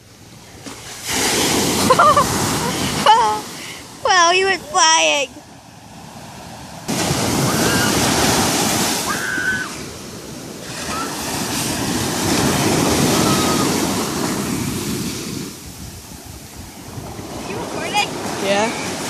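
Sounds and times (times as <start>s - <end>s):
ocean surf breaking: 0.3s - 19.0s.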